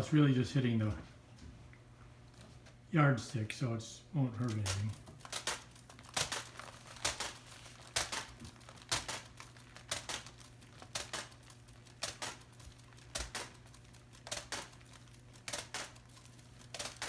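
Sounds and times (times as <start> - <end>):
plastic sheeting crinkling swish: 4.4 - 17.0.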